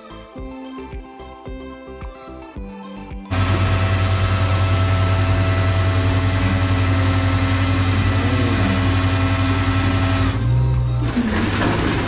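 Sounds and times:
truck engine idling: 3.3s - 12.0s.

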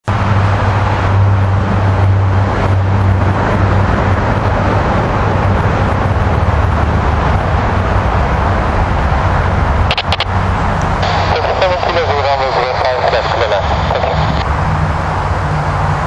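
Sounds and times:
distant jet engines roaring: 0.0s - 16.0s
low steady hum: 9.8s - 14.5s.

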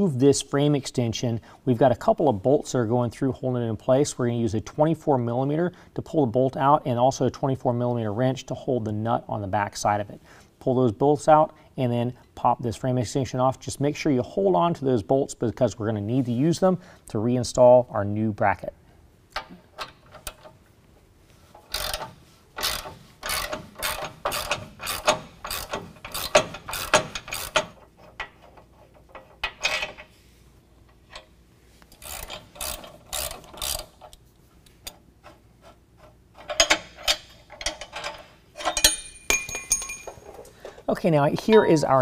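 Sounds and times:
hand ratchet clicking: 21.7s - 28.4s, 31.9s - 34.2s.

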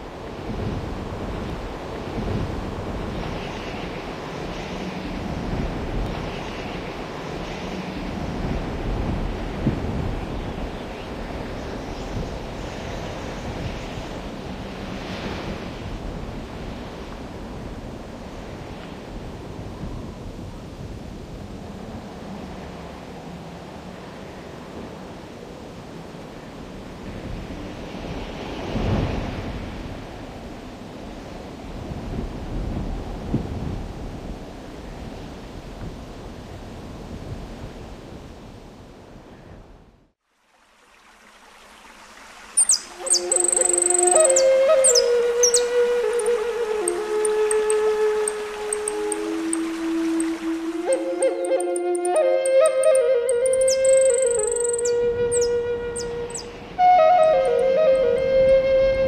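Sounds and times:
river water rushing: 40.3s - 58.6s.

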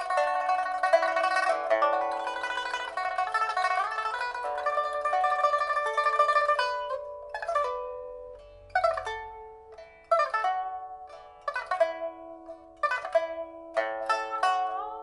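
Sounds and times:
pipa plucked notes: 0.0s - 15.0s.

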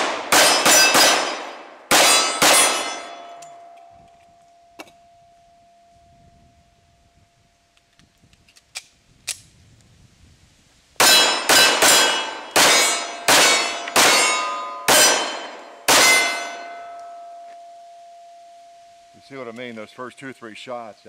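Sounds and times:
handgun shots: 0.0s - 3.0s, 11.0s - 16.4s
steel targets clanging: 0.3s - 3.8s, 11.0s - 17.4s.

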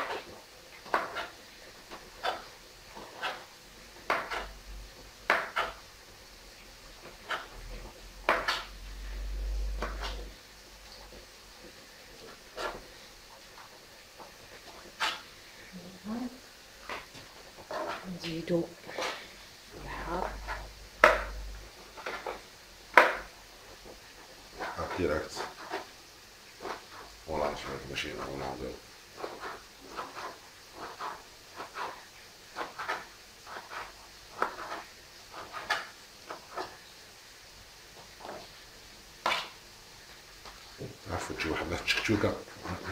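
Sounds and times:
low hum: 8.7s - 10.3s, 19.7s - 21.8s
fingers rubbing and scraping pepper skin: 26.6s - 36.8s.

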